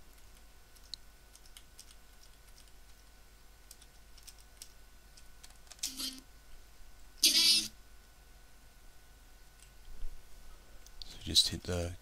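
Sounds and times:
keyboard keys clicking: 0.1s - 3.0s, 3.7s - 6.1s.

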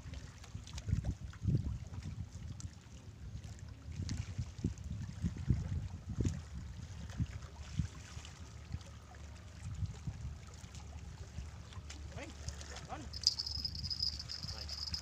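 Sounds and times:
wind rumbling on microphone: 0.8s - 2.6s, 3.9s - 7.9s.

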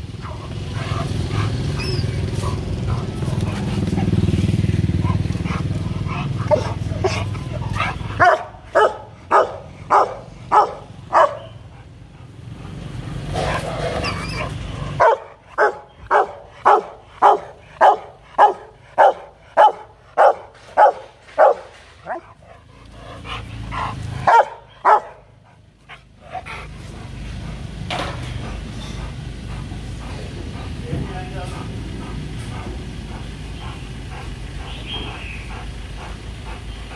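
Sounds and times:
dog barking loudly: 0.2s - 11.7s, 14.0s - 22.4s, 24.0s - 25.4s.

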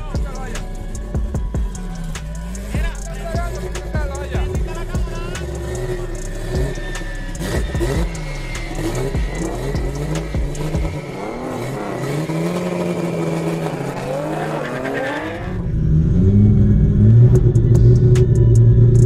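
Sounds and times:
race car engine idling and revving: 0.0s - 19.0s
engine drone inside car cabin: 0.1s - 14.1s, 15.4s - 19.0s.

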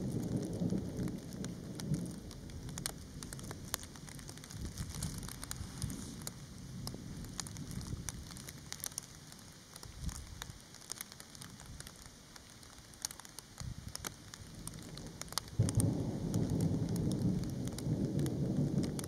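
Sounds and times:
thunder rumbling: 0.0s - 8.9s, 13.6s - 19.0s
raindrops ticking: 0.0s - 19.0s.

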